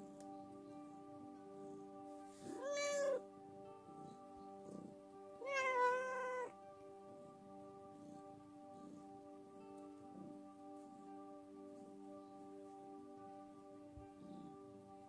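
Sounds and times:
background music: 0.0s - 15.0s
cat meowing: 2.6s - 3.2s, 5.4s - 6.5s.

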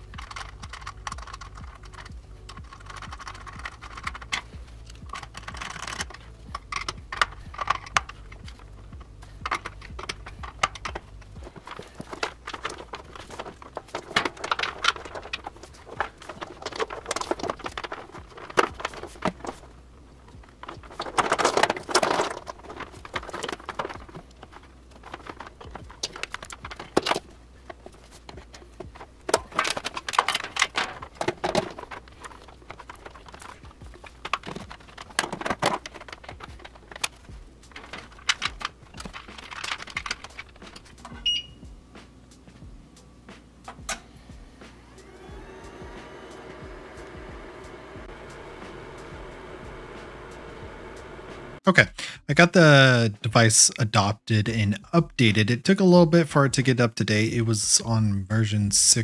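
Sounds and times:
clicks and knocks of equipment: 0.0s - 41.4s.

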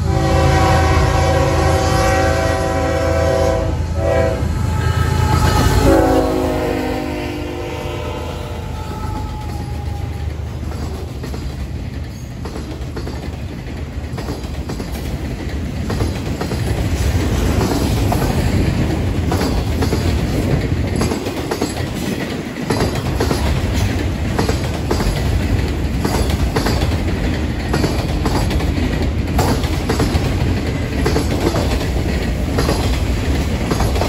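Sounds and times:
locomotive horn: 0.0s - 10.3s
wheels clacking over rail joints: 8.7s - 34.0s.

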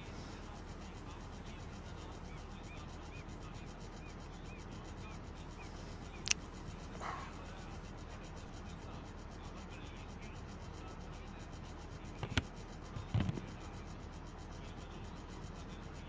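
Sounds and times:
steady low hum: 0.0s - 4.5s, 5.4s - 16.0s
sharp click: 6.2s - 6.6s, 12.2s - 13.5s.

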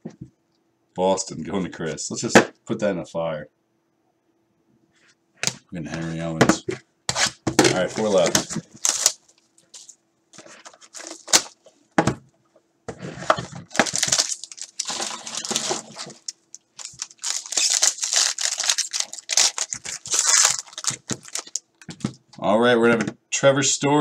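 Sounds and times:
plastic wrapper crinkling and tearing: 7.2s - 11.6s, 13.6s - 22.2s.

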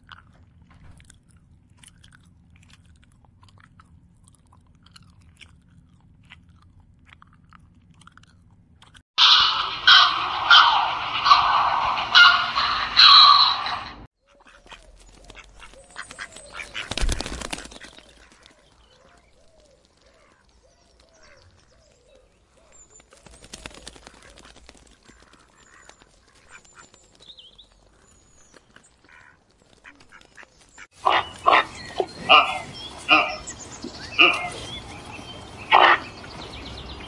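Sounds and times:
loud animal calls: 9.2s - 14.1s, 29.1s - 36.3s
rush of noise: 9.2s - 14.1s
waterbirds quacking: 9.2s - 21.8s, 23.5s - 27.1s, 27.8s - 37.0s.

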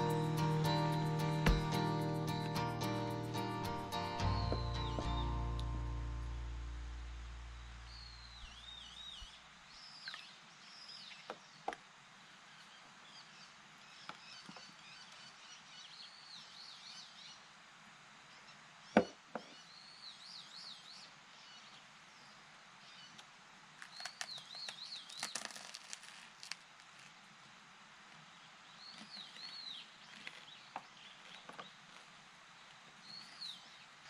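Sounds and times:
sharp knock: 1.4s - 1.8s.

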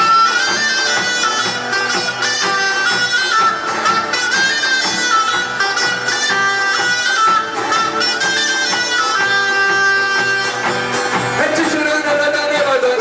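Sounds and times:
bagpipe melody with drone: 0.0s - 12.6s
man singing: 11.4s - 13.0s.

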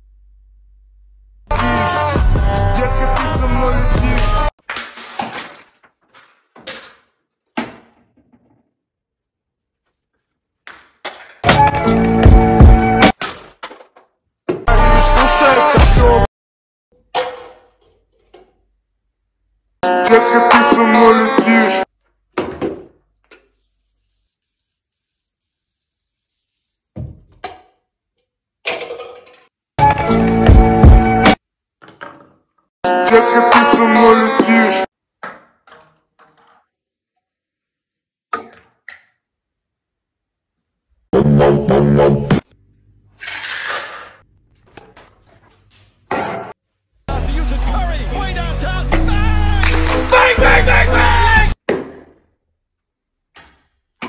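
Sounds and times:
music: 1.5s - 4.5s, 11.5s - 13.2s, 14.7s - 16.3s, 19.8s - 21.9s, 29.8s - 31.4s, 32.9s - 34.9s, 41.2s - 42.4s, 47.1s - 51.6s.

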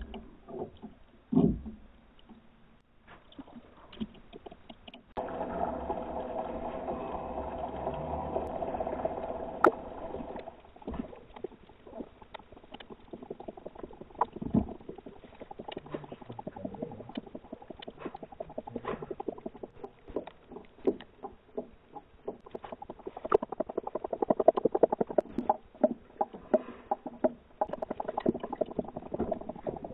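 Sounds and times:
water sloshing underwater: 0.0s - 29.9s
steady hum: 5.2s - 11.5s.

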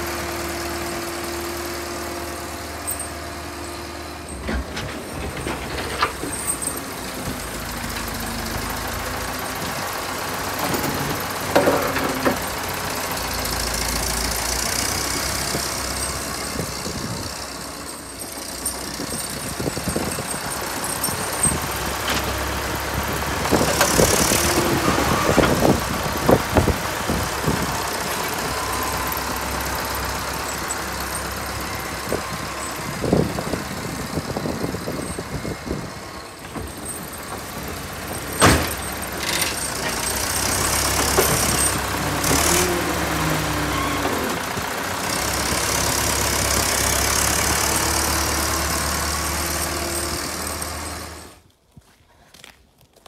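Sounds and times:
diesel loader engine running: 0.0s - 51.5s
metal knocks and clanks: 4.3s - 8.7s, 10.6s - 12.5s, 36.4s - 40.3s.

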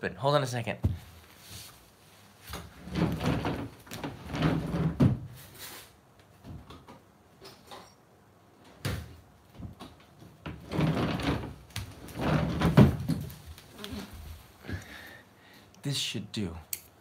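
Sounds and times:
sliding closet door on track: 2.5s - 5.5s, 10.4s - 13.6s
knocks and rummaging: 8.8s - 13.6s
bare feet on wooden floor: 9.5s - 15.1s.

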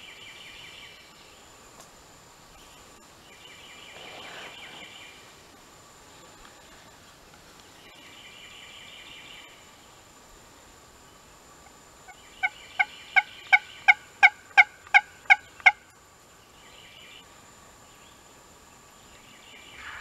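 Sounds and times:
turkey call yelping: 12.4s - 15.8s.

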